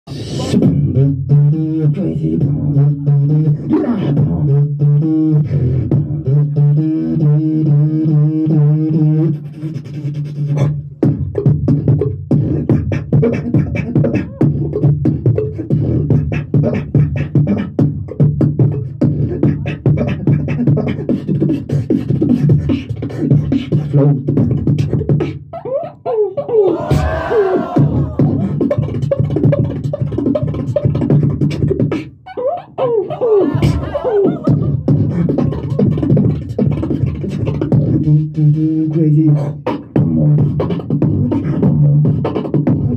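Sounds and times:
beatboxing percussive clicks: 0:00.1 - 0:27.2, 0:27.8 - 0:42.9
beatboxing bass note: 0:00.1 - 0:42.9
wavering vocal line: 0:25.2 - 0:41.8.

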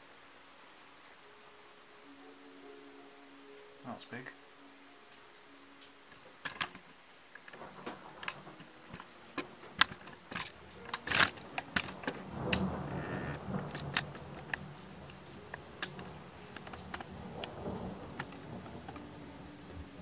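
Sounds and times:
low rumble: 0:11.4 - 0:20.0.

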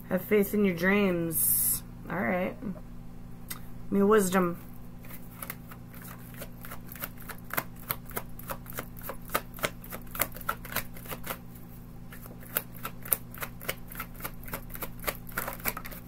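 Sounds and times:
cards being shuffled: 0:05.0 - 0:16.0.

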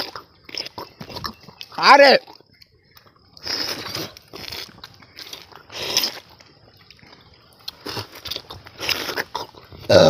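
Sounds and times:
fruit being bitten and sucked: 0:02.3 - 0:10.0.

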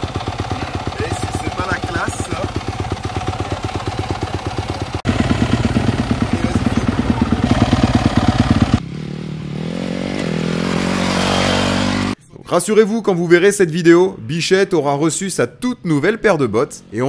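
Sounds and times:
dirt bike engine chugging and revving: 0:00.0 - 0:12.2.

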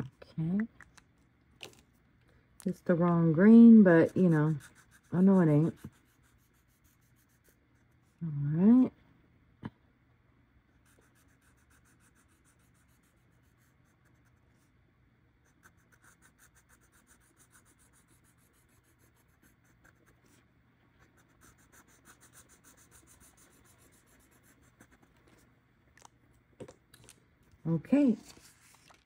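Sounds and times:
marker scratching on paper: 0:03.5 - 0:08.2, 0:10.8 - 0:14.7, 0:15.4 - 0:20.4, 0:21.0 - 0:25.1.

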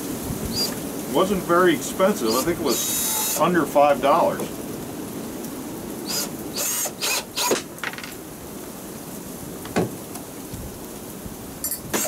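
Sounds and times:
wind noise: 0:00.0 - 0:07.5, 0:09.6 - 0:12.0
cordless drill driving screw: 0:00.6 - 0:00.8, 0:02.2 - 0:03.4, 0:06.0 - 0:07.7.

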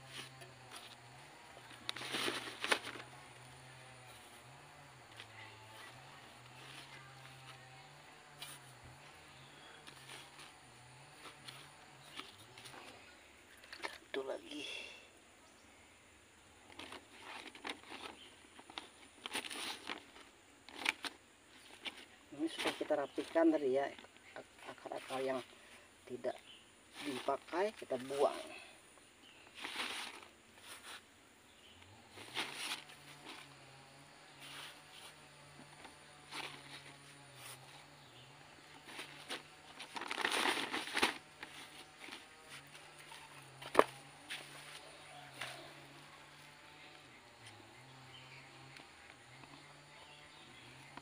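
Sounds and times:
potting mix rustling and crunching: 0:00.0 - 0:14.9, 0:16.6 - 0:31.1, 0:31.9 - 0:51.0
plastic bags rustling: 0:01.7 - 0:03.2, 0:29.6 - 0:31.0, 0:38.8 - 0:45.9.

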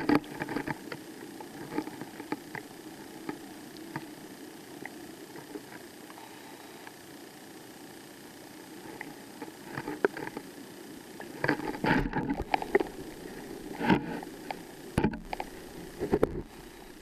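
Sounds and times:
underwater hiss: 0:11.2 - 0:17.0
knocks and scrapes on camera: 0:11.4 - 0:13.0, 0:13.7 - 0:14.3, 0:15.0 - 0:16.5.

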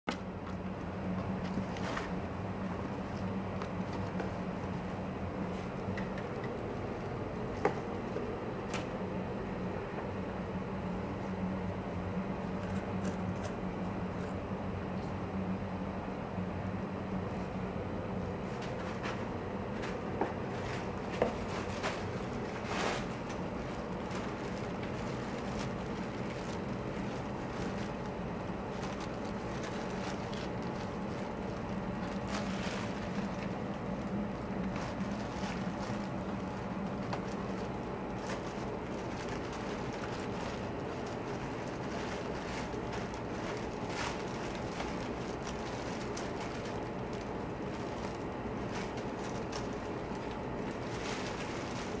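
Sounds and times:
low rumbling background noise: 0:00.1 - 0:52.0
steady low hum: 0:00.1 - 0:52.0
rustles on cardboard and tissue paper: 0:00.2 - 0:08.7, 0:17.3 - 0:52.0.

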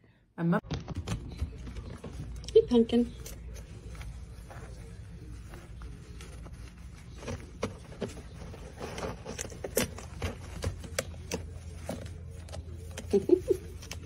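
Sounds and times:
low room hum: 0:00.0 - 0:14.0
small animal rustling in bedding: 0:03.1 - 0:13.0.

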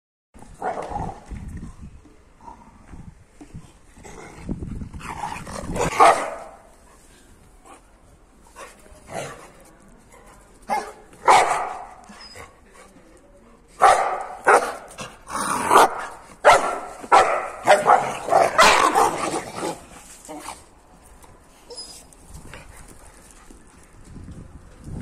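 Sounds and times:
dog barking: 0:05.9 - 0:06.6, 0:10.7 - 0:12.0, 0:13.8 - 0:14.8, 0:15.7 - 0:19.2.

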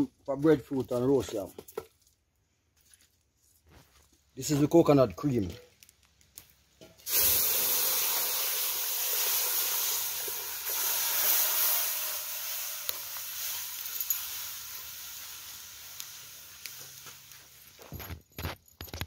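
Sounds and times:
liquid hissing in hot pot: 0:07.0 - 0:17.8.

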